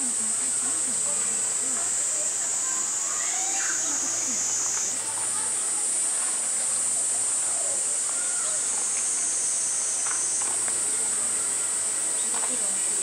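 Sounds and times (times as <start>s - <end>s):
faint distant voices: 0.0s - 13.0s
high-pitched insect drone: 0.0s - 13.0s.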